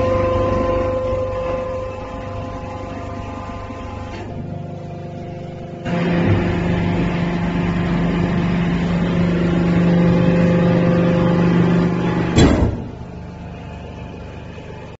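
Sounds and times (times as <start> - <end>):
hydraulic power unit humming: 0.0 - 15.0
loud machine clunk: 5.9 - 13.3.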